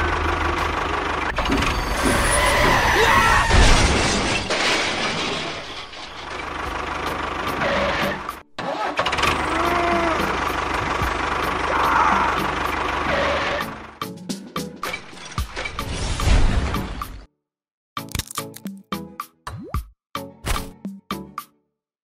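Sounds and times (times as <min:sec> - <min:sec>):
tractor engine rumbling: 0:00.0 - 0:14.1
clattering crash with thump: 0:03.3 - 0:06.8.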